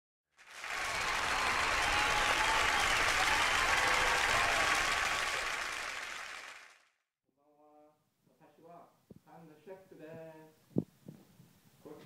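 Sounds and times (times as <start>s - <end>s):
audience applause: 0.4s - 6.9s.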